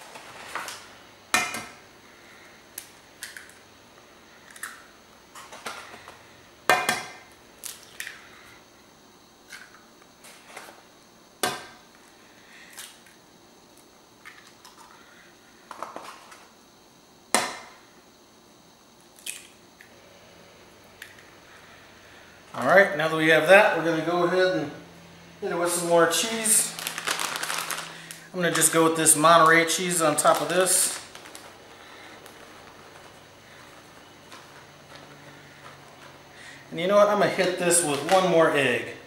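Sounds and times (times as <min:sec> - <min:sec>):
eggshells cracking: 0:26.7 - 0:32.8.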